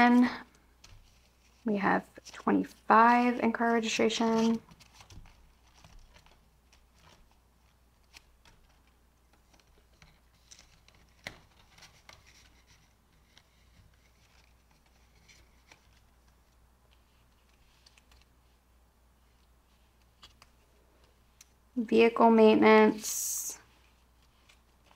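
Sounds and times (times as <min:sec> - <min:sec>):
plastic binder pockets handled: 0:04.1 - 0:18.3.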